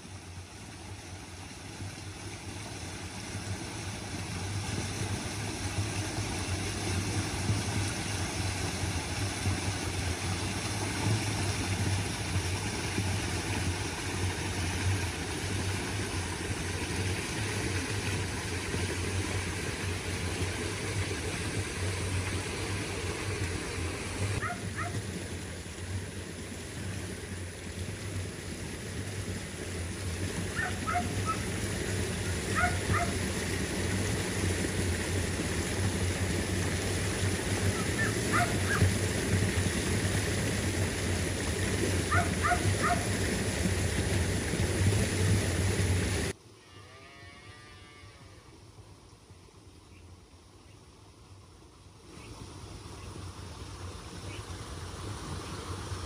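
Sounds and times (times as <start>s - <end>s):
low engine hum: 0.0s - 46.4s
water rushing along a channel: 0.0s - 46.4s, 51.0s - 56.0s
dog barking: 24.4s - 24.9s, 30.6s - 31.4s, 32.6s - 33.1s, 38.3s - 38.8s, 42.1s - 43.0s.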